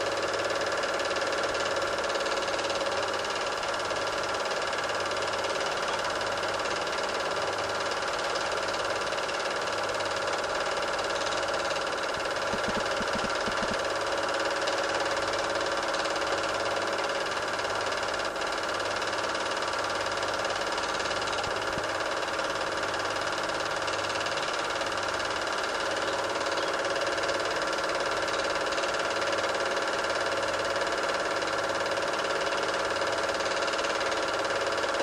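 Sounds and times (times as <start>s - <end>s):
film projector whirring: 0.0s - 35.0s.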